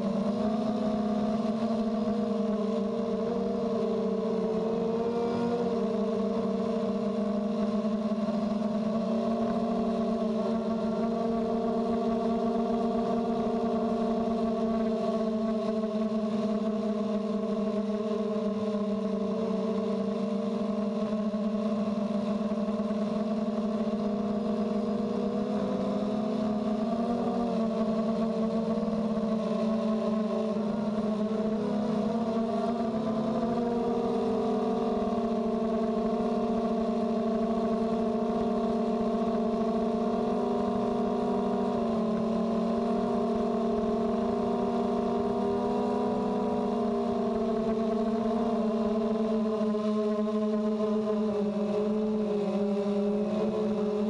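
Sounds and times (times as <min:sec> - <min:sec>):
quadcopter motors whining: 0:00.0 - 0:54.0.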